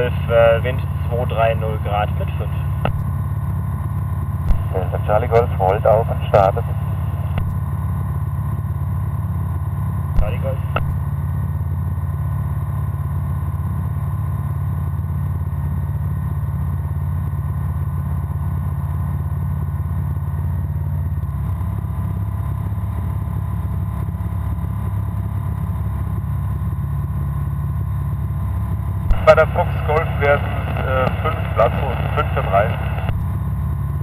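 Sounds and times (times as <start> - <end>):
light aircraft engine drone: 0.0 - 34.0.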